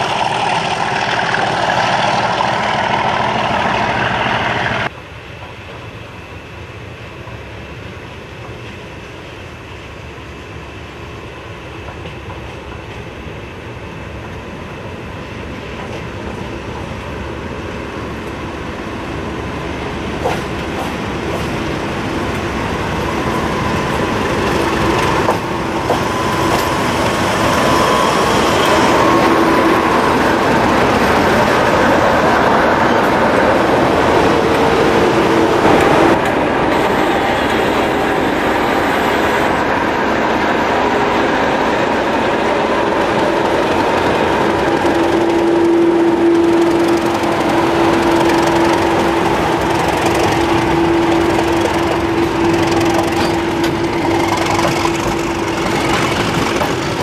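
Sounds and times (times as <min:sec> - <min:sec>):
diesel locomotive running: 0:00.0 - 0:57.0
train rumbling past: 0:00.0 - 0:57.0.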